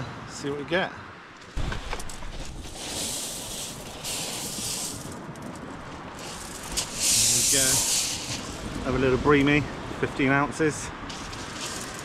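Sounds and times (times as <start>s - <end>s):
stones rattling: 1.4s - 8.5s, 11.1s - 12.0s
waves washing over shingle: 1.6s - 9.6s, 11.0s - 12.0s.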